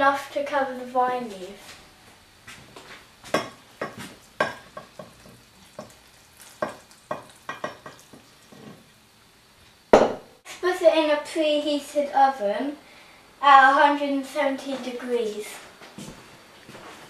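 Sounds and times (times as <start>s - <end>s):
liquid splashing and dripping: 5.1s - 8.6s.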